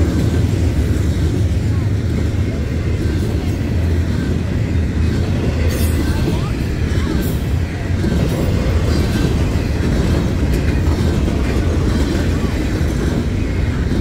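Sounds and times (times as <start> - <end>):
freight train wheels rumbling: 0.0 - 14.0.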